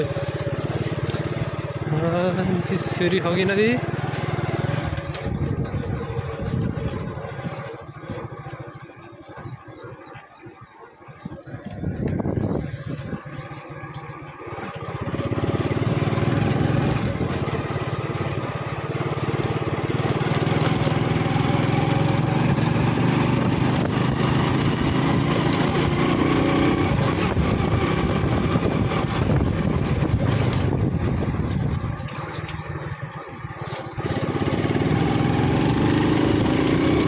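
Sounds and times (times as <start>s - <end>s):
small vehicle engine running: 0.0s - 37.0s.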